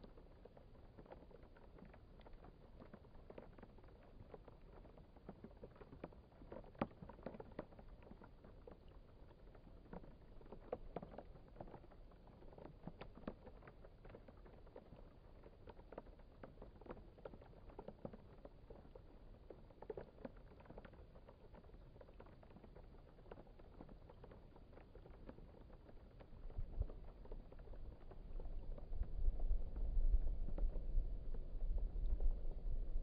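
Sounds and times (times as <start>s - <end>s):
raindrops on plastic tarp: 0.0s - 33.0s.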